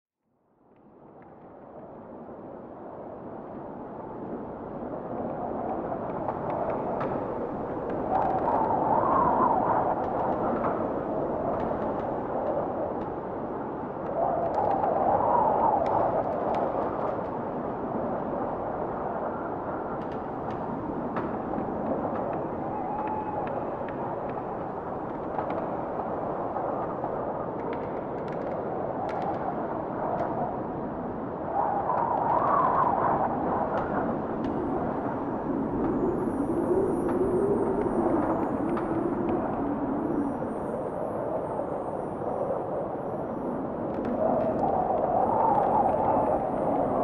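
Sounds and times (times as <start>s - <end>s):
faint small clicks: 27.6s - 30.4s.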